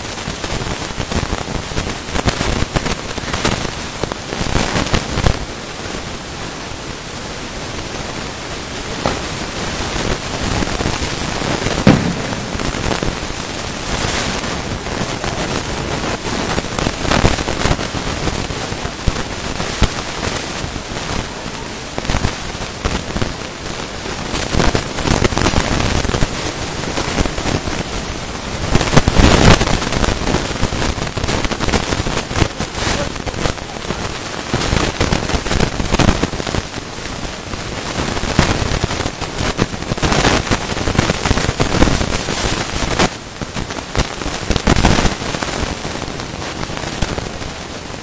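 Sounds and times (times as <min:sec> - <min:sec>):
fireworks crackling: 0:00.0 - 0:48.0
fireworks pops: 0:00.1 - 0:05.4, 0:09.0 - 0:28.0, 0:28.6 - 0:37.2, 0:37.9 - 0:47.3
heavy firework bangs: 0:09.0 - 0:21.2.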